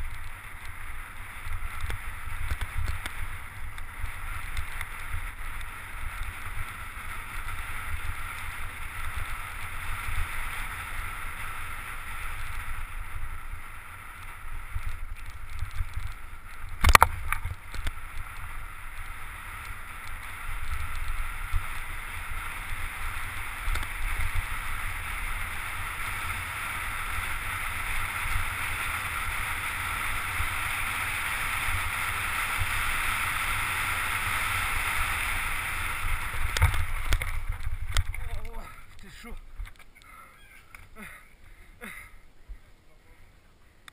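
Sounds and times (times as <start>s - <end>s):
bike tyres on dirt trail: 0.0s - 43.9s.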